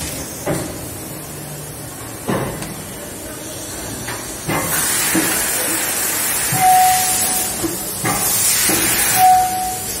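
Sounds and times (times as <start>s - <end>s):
machinery hissing: 2.9s - 10.0s.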